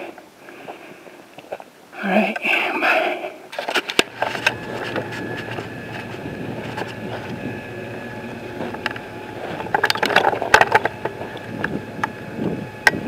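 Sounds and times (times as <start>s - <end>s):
sharp clicks and crunches: 3.5s - 13.0s
footsteps crunching on rocky ground: 3.7s - 12.4s
microphone handling noise: 4.0s - 13.0s
wind rumble on microphone: 4.2s - 13.0s.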